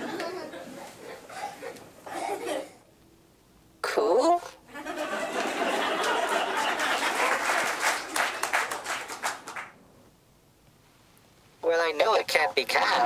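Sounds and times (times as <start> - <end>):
audience applause: 5.1 - 9.7.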